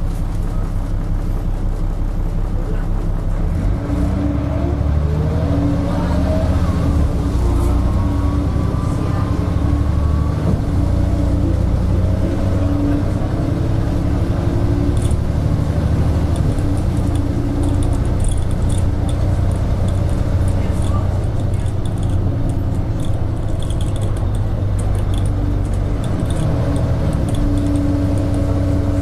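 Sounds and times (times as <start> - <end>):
bus engine running: 0.0 - 29.0
rising drivetrain whine: 0.0 - 29.0
light rattling: 12.4 - 29.0.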